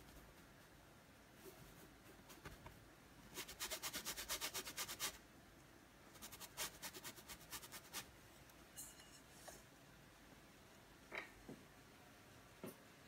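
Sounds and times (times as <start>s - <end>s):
paintbrush scrubbing on canvas: 3.3s - 5.2s, 6.1s - 8.1s.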